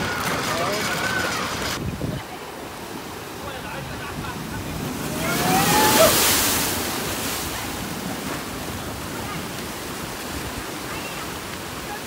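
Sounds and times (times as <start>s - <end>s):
foaming surf: 0.0s - 12.0s
ocean wave crashing on rocks: 0.0s - 12.0s
person crying out: 5.1s - 6.3s.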